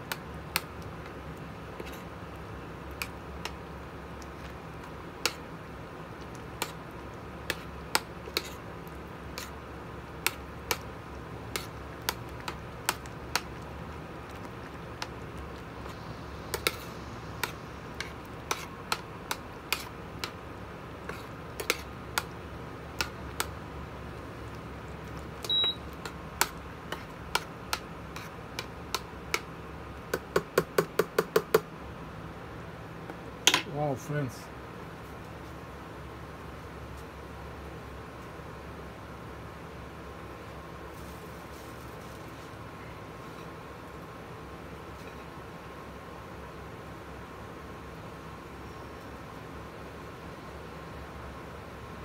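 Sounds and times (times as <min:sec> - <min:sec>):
metal spoon scraping a pan: 0:08.3 - 0:08.6
short high beep: 0:25.5 - 0:25.8.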